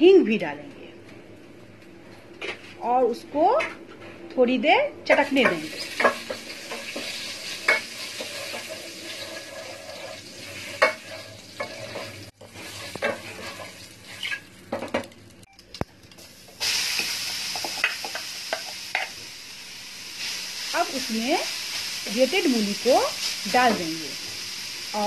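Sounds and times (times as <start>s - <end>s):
seeds sizzling in hot oil: 5.5s - 14.7s, 16.2s - 25.0s.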